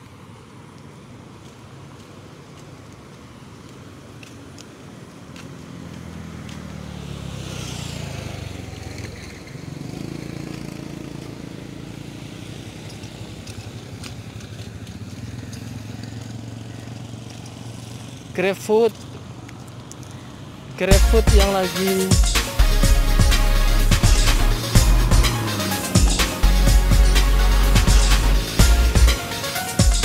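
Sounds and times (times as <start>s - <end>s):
motorcycle engine running: 7.8s - 18.4s, 20.9s - 30.0s.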